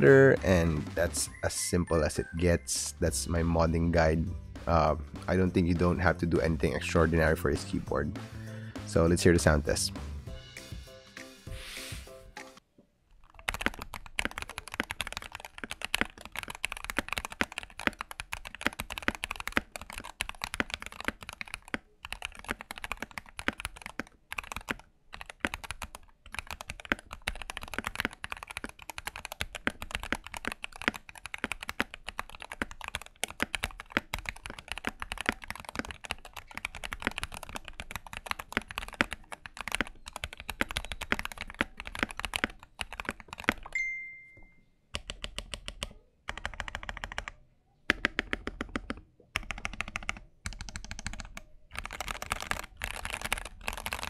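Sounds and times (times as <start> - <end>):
typing on mechanical keyboard: 13.2 - 43.8, 45.0 - 54.0.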